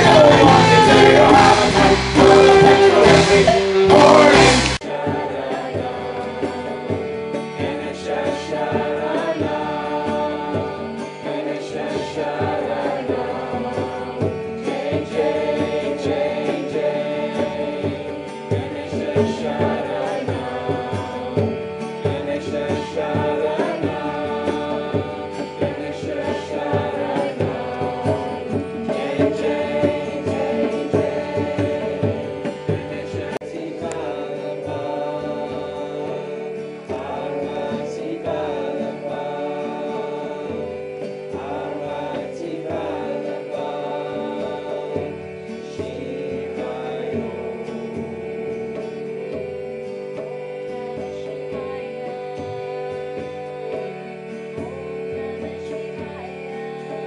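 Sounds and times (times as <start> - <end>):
hand drum rhythm: 0.0 - 57.0
harmonium drone: 0.0 - 57.0
woman chanting: 50.2 - 57.0.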